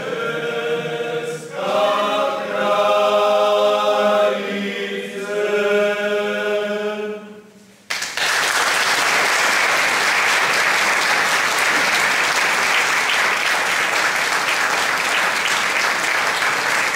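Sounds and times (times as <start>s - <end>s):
men singing a cappella: 0.0s - 7.2s
audience applause: 7.9s - 16.9s.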